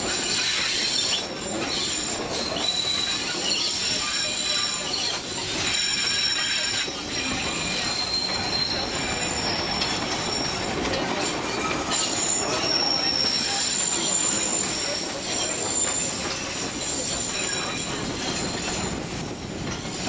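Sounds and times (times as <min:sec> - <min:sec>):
high-pitched wheel squeals: 0:00.0 - 0:19.2
train wheels running on rail: 0:00.0 - 0:20.0.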